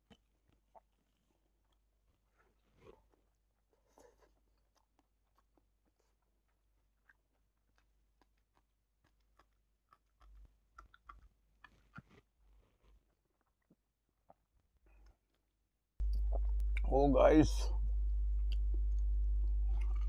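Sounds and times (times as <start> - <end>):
biting into chilli: 0.0 - 15.4
person chewing: 0.0 - 16.8, 18.4 - 20.0.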